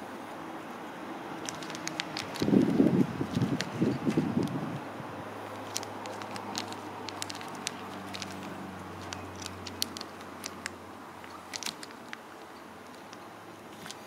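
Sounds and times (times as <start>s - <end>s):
stones clicking in plastic bag: 1.4s - 4.6s, 5.6s - 12.2s.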